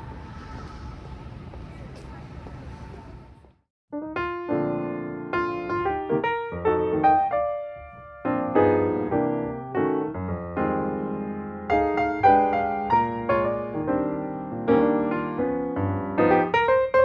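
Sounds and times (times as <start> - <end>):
piano-like keyboard music: 3.9 - 17.0.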